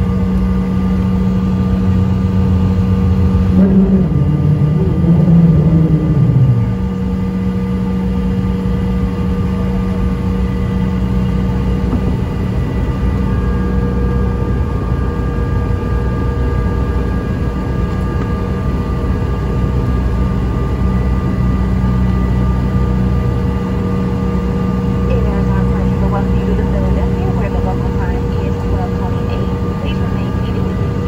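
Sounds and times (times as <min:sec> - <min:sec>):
jet engines humming and whining: 0:00.0 - 0:31.0.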